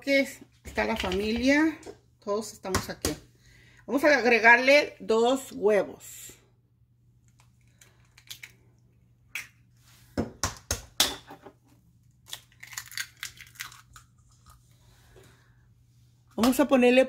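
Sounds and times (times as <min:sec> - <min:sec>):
eggshells cracking: 0:07.3 - 0:08.7, 0:12.1 - 0:14.6.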